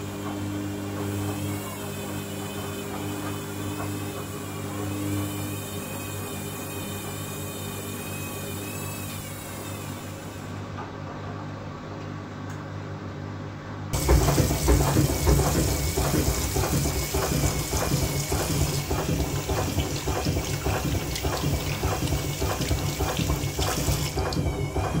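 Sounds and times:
washing machine hum: 0.0s - 25.0s
water sloshing: 14.0s - 24.6s
regular knocking: 14.0s - 25.0s
water rushing into drum: 14.0s - 25.0s.

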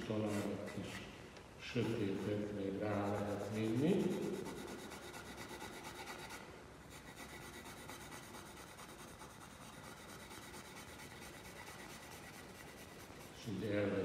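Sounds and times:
pencil shading on paper: 2.9s - 13.3s.

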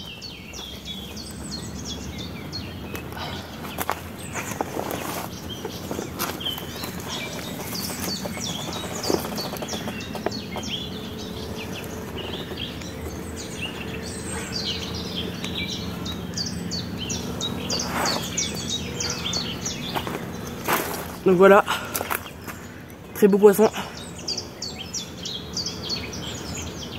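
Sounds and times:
songbirds chirping and singing: 0.0s - 26.9s.

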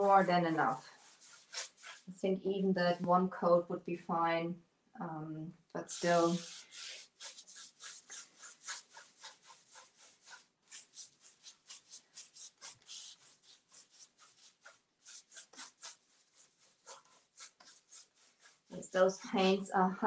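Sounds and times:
paintbrush scrubbing on wood: 0.0s - 2.2s, 5.8s - 19.6s.

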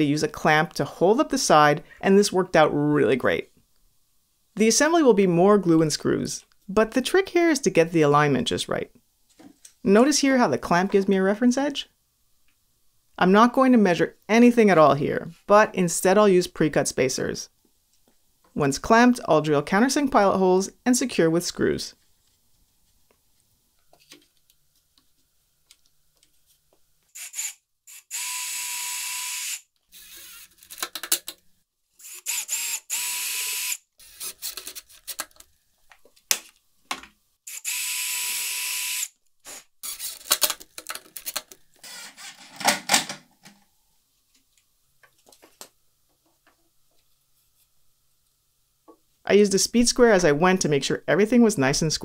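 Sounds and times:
cordless drill running: 27.1s - 30.6s, 32.0s - 34.5s, 37.5s - 40.3s, 41.8s - 42.4s.

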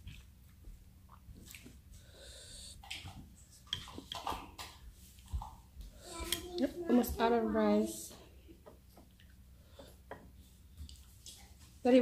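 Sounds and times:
soft breathing: 1.9s - 2.9s, 9.5s - 10.8s.

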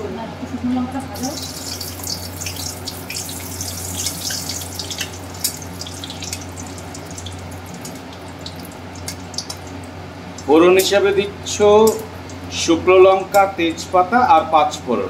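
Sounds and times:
spices sizzling in hot oil: 1.1s - 11.0s.

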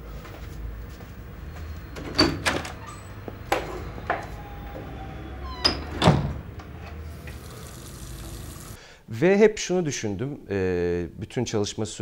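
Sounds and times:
door shutting: 1.9s - 7.5s.

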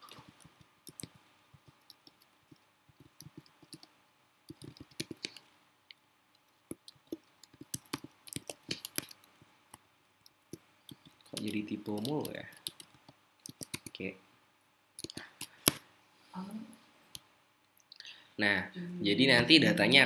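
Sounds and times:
computer keyboard keys clicking: 0.4s - 3.9s, 4.5s - 5.5s, 6.8s - 9.2s, 10.9s - 14.0s.

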